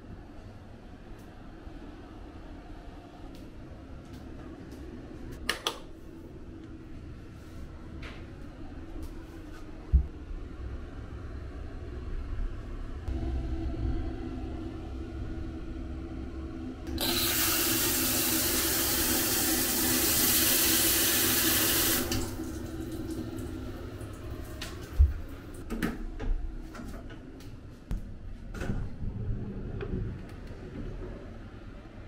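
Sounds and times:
shower spraying water: 16.9s - 25.6s.

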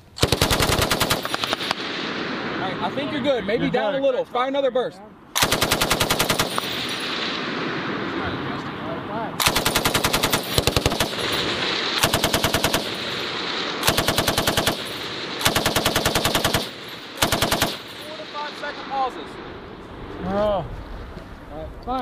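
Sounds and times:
machine gun bursts: 0.2s - 1.8s, 5.4s - 7.0s, 9.4s - 18.3s
gunshot echo: 1.1s - 3.0s.

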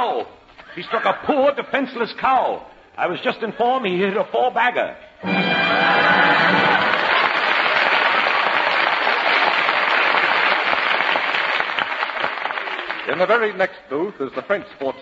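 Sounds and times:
audience applauding: 5.3s - 13.6s.

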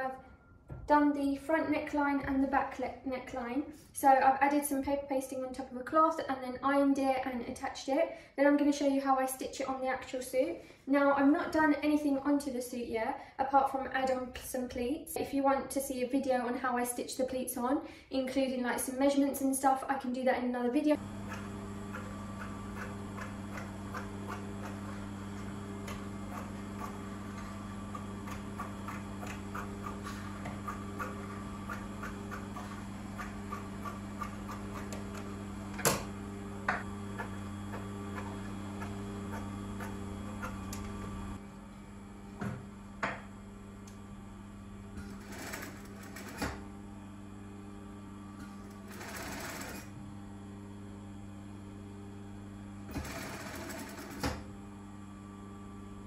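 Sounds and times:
sewing machine motor humming: 20.9s - 56.0s
sewing machine stitching: 21.0s - 41.4s, 44.9s - 46.7s, 48.4s - 50.0s, 52.9s - 54.5s.

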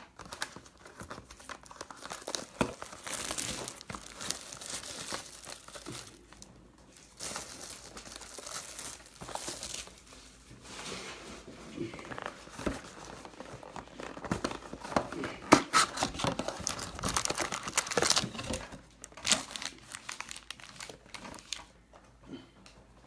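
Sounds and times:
card pack wrappers crinkling: 0.1s - 10.4s, 12.0s - 21.8s.

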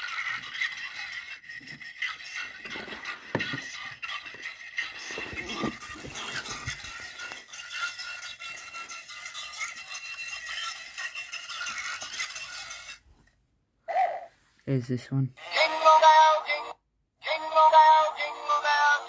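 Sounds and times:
rattling scraping sound: 0.0s - 8.1s
tinny music from small speaker: 0.0s - 13.0s, 15.4s - 19.0s.

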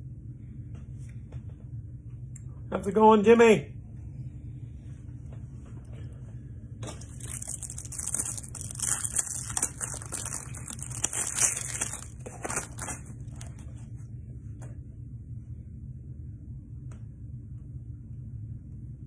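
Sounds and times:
crinkling handling noise: 6.8s - 14.1s.

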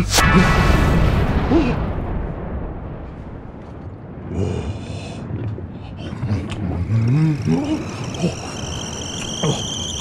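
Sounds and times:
low rumbling noise: 0.0s - 10.0s
high multi-tone whistle: 7.8s - 10.0s.

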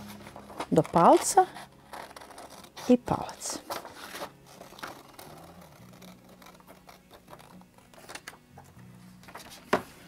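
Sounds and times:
paper rustling: 0.0s - 3.0s, 3.6s - 8.4s
scissors snipping paper: 0.6s - 3.0s.

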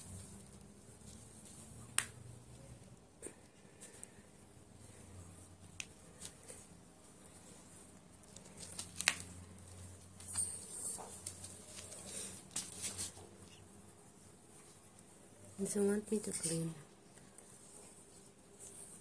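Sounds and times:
tissue wipe rustling: 4.8s - 19.0s.

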